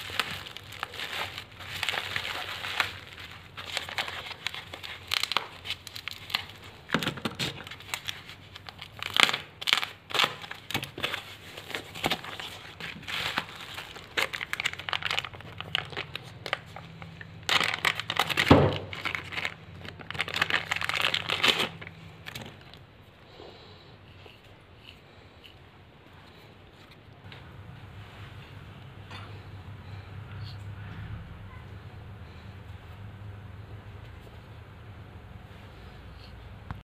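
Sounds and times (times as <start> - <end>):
plastic packaging crinkling: 0.0 - 23.1.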